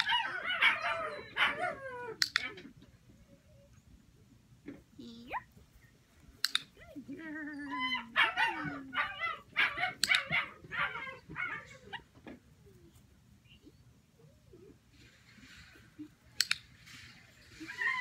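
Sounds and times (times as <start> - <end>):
puppy yipping and barking: 0.0 - 2.7, 7.9 - 12.1
sharp clicks: 2.2 - 2.5, 6.3 - 6.8, 10.0 - 10.3, 16.4 - 16.7.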